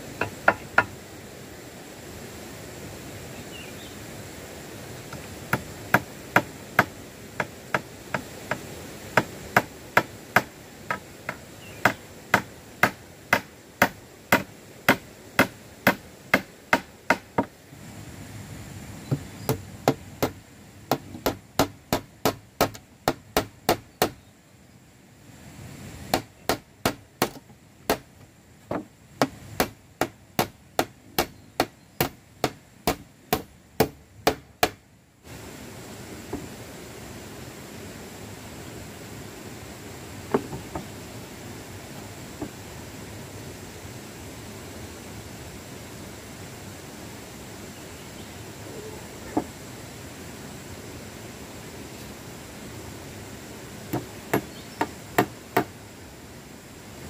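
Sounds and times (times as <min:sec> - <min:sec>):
hammer striking wooden planks: 0:00.2 - 0:00.9, 0:09.2 - 0:17.5, 0:19.5 - 0:24.2, 0:26.1 - 0:28.1, 0:28.7 - 0:34.8.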